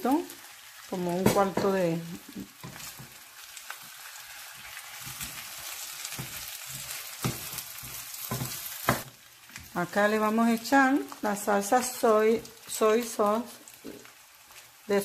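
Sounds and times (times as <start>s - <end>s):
rice sizzling in a frying pan: 0.0s - 15.0s
spatula knocking and scraping pan: 1.2s - 1.8s, 2.6s - 3.2s, 4.6s - 5.5s, 6.1s - 9.7s.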